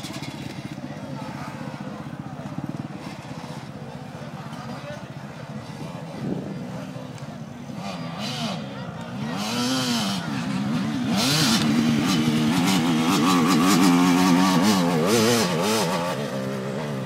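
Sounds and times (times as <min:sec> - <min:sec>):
dirt bike engine revving: 0:07.6 - 0:17.0.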